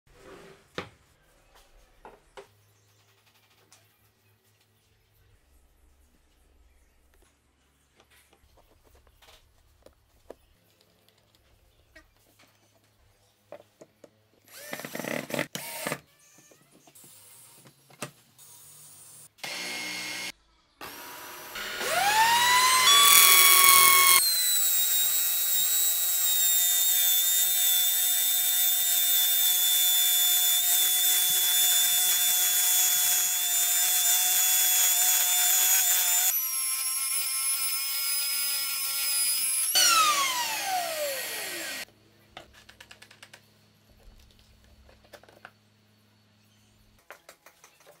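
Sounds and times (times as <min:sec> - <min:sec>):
router motor whining: 0:14.5 - 0:16.0, 0:19.4 - 0:41.8.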